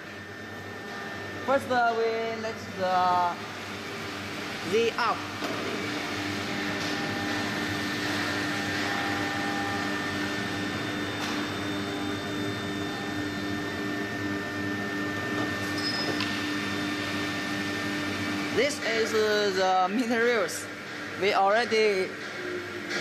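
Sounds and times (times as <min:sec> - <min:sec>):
stepper motor whine: 0:00.0 - 0:23.0.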